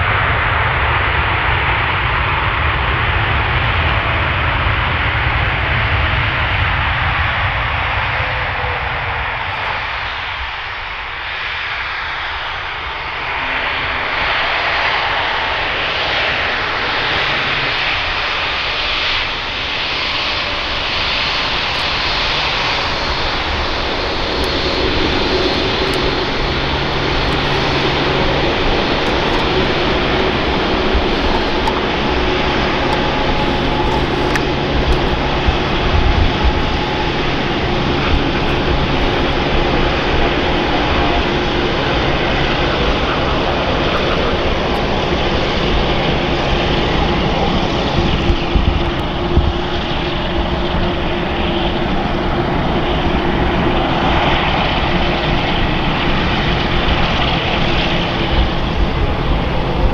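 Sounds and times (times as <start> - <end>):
jet engines rushing: 0.0 - 59.9
steady engine tones: 12.2 - 59.9.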